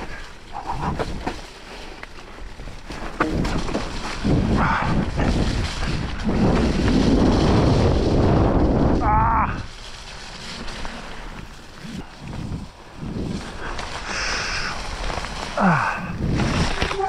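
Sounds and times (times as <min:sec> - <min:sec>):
bike rattling over rough ground: 0:00.0 - 0:17.0
wind buffeting microphone: 0:03.2 - 0:09.8.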